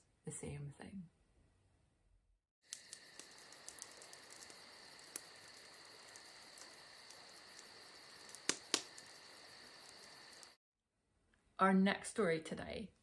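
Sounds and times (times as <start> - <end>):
insects chirping in a high trill: 2.6 - 10.6
sharp clicks: 2.7 - 5.3, 6.1 - 9.2.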